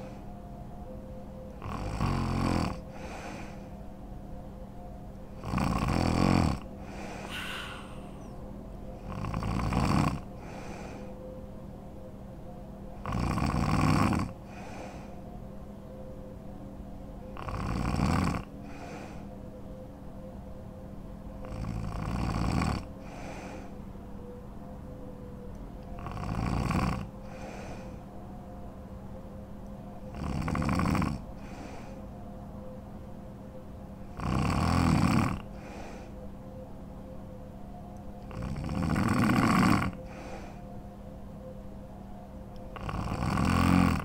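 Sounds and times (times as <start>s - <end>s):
quiet breathing: 0.0s - 11.6s, 12.9s - 16.4s, 17.2s - 19.8s, 21.4s - 24.4s, 25.8s - 28.6s, 29.9s - 32.8s, 34.1s - 36.7s, 38.2s - 41.5s
woman snoring: 1.6s - 3.2s, 5.4s - 8.3s, 9.0s - 10.6s, 13.0s - 14.7s, 17.4s - 19.0s, 21.4s - 23.6s, 26.0s - 27.7s, 30.1s - 31.2s, 34.2s - 35.7s, 38.3s - 40.2s, 42.8s - 44.0s.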